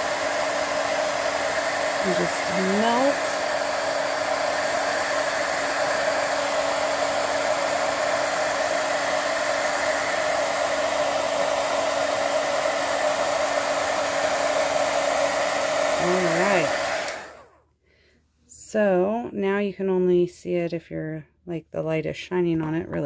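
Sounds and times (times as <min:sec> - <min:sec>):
heat gun blowing: 0:00.0 - 0:17.6.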